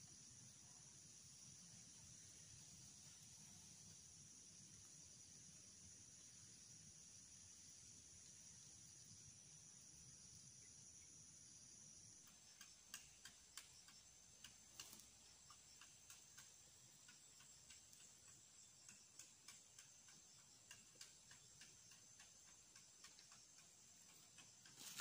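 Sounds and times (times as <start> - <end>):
faint field ambience: 0.0 - 25.0
faint irregular ticks: 12.1 - 25.0.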